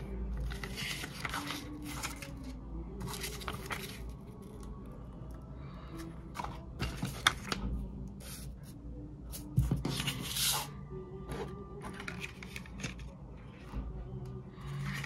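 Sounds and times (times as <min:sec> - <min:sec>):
paper leaflets rustling: 0:00.4 - 0:04.0.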